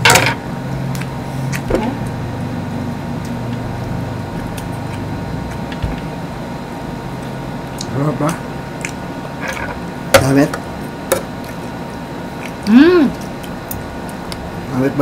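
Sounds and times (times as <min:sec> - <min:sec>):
low mechanical hum: 0:00.0 - 0:15.0
person humming mm: 0:12.6 - 0:13.2.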